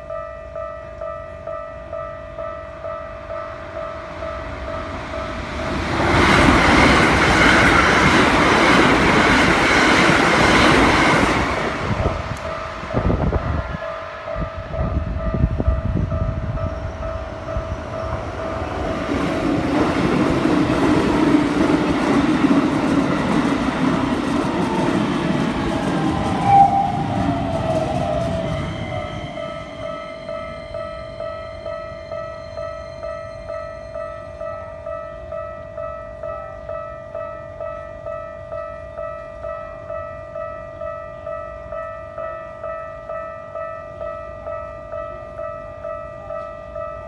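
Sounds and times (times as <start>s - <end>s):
train wheels rushing on rails: 3.5s - 32.7s
level crossing bell ringing: 28.0s - 47.0s.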